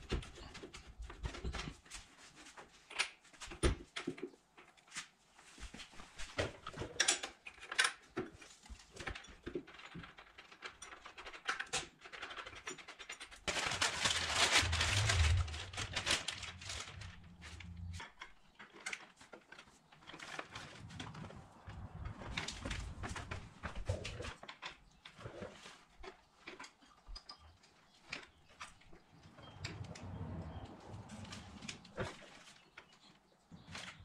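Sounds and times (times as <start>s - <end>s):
paper wrapping crinkling: 13.2s - 24.6s.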